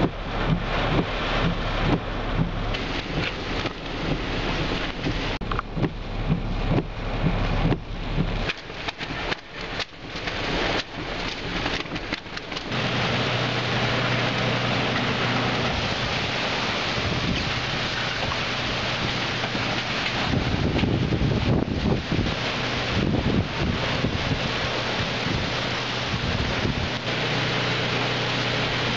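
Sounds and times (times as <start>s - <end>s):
heavy rain hissing: 0.0s - 5.4s, 6.0s - 28.9s
wind gusts buffeting microphone: 0.0s - 27.2s
low hum: 0.0s - 28.9s.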